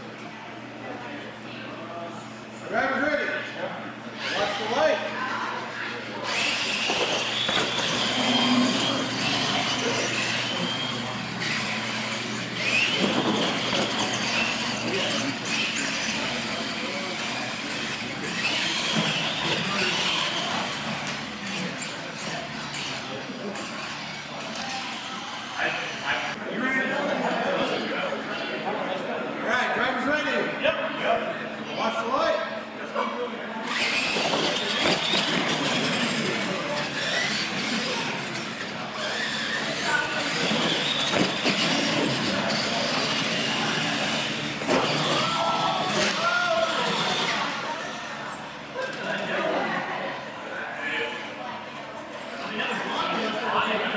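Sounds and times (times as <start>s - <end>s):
rc trucks electric motor whine: 4.2s - 26.4s, 33.6s - 50.2s
tires rolling on concrete: 33.8s - 48.2s.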